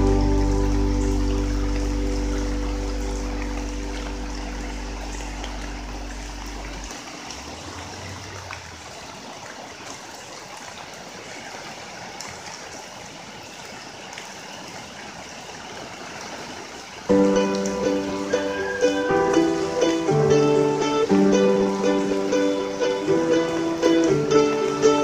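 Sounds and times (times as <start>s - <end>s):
music: 0.0s - 6.7s, 17.1s - 25.0s
plucked-string music: 0.0s - 6.9s, 17.1s - 25.0s
flooded creek rushing: 0.0s - 25.0s.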